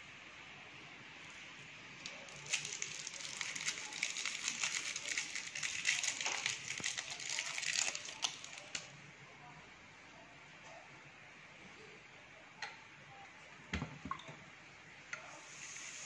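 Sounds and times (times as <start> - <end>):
candy wrapper crinkling: 2.0 - 8.9.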